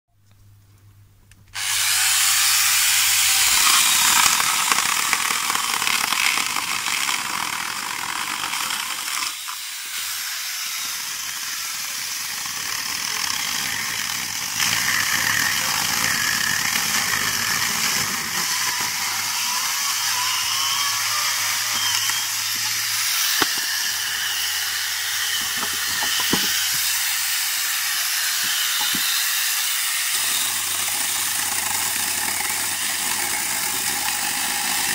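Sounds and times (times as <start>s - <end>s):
electric chainsaw cutting branches: 1.5s - 34.9s.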